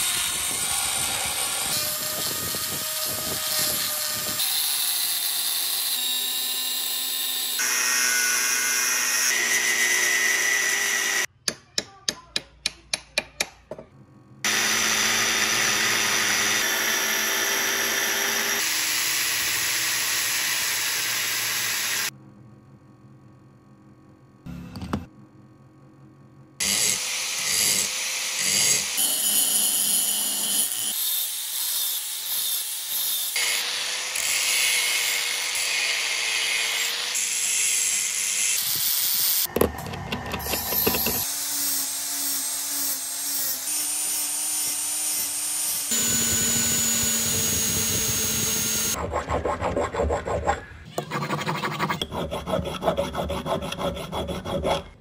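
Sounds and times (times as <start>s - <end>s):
angle grinder grinding steel: 40.4s - 49.0s.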